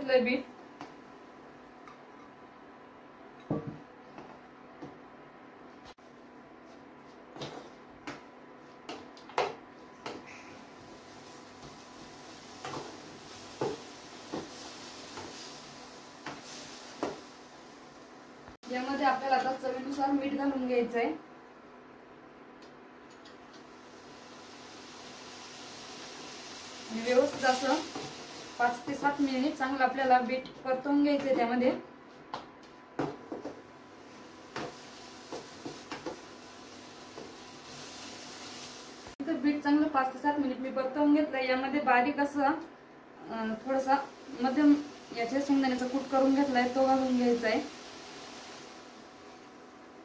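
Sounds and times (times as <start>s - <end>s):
faint steady hiss: 43.2s - 50.0s.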